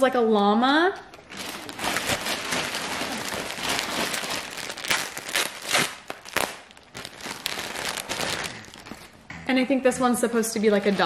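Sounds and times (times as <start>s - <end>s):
plastic bag crinkling: 1.1s - 9.2s.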